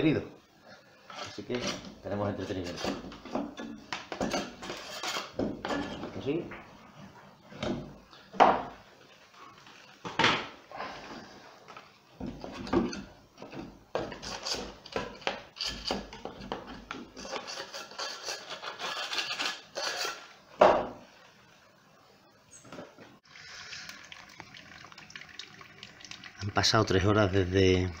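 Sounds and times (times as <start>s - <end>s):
spatula scraping wooden frame: 17.1s - 20.3s.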